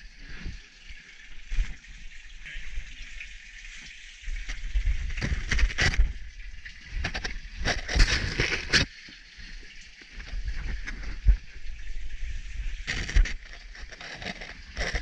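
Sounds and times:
gear scraping against rock: 5.2 - 6.2, 6.9 - 8.9, 12.8 - 15.0.

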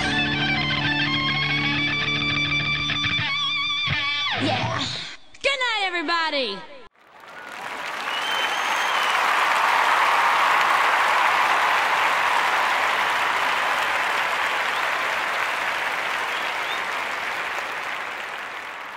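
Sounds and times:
crowd applause: 7.0 - 18.9.

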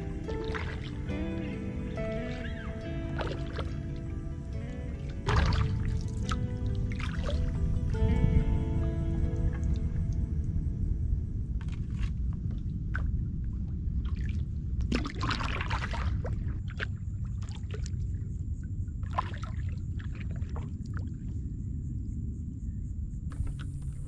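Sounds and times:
water dripping: 0.0 - 8.1
paddle splashing water: 0.0 - 8.2, 11.6 - 18.2, 19.0 - 21.2
low rumble: 0.0 - 24.0.

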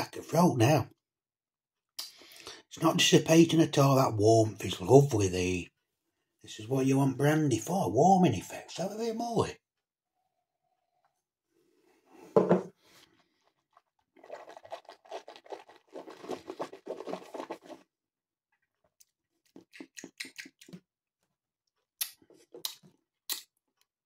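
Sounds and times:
glass set down on counter: 12.4 - 12.7
person sipping from a glass: 13.1 - 17.8
lip smacking and mouth clicks: 19.0 - 20.9, 22.0 - 23.9.

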